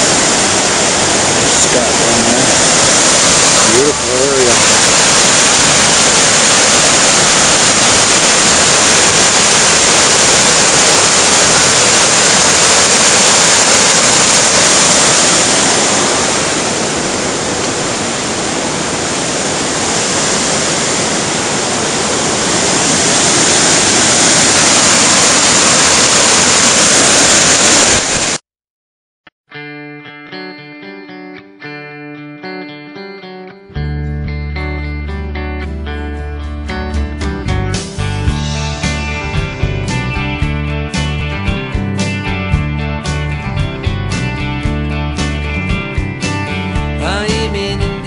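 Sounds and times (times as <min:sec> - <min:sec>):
whitewater rushing over rocks: 0:00.0 - 0:28.4.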